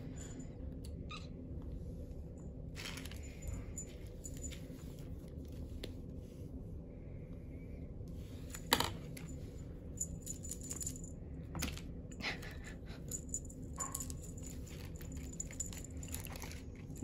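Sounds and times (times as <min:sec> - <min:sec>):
steady low hum: 0:00.0 - 0:17.0
kittens playing with a feather toy: 0:02.7 - 0:06.0, 0:08.2 - 0:17.0.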